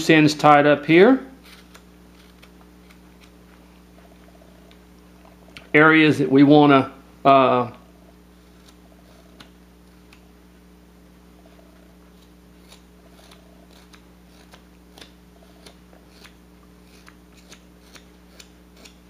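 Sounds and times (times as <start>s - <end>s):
knife snicking wood: 12.1s - 19.0s.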